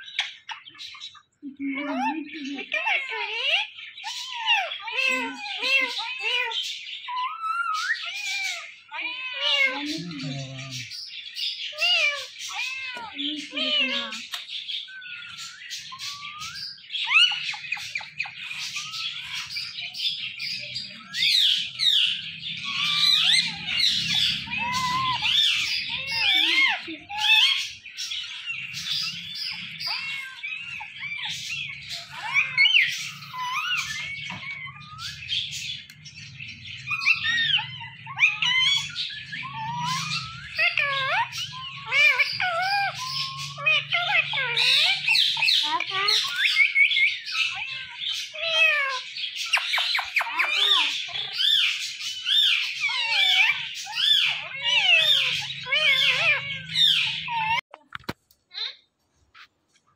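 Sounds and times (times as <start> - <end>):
parakeet calling: 0.0 - 57.7
parrots chirping and squawking: 0.0 - 59.9.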